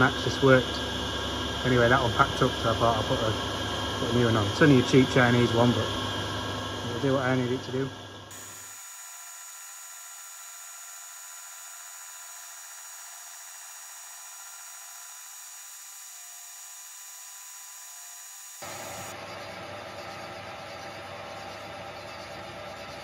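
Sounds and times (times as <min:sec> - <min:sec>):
metal lathe whine: 0:00.0 - 0:23.0.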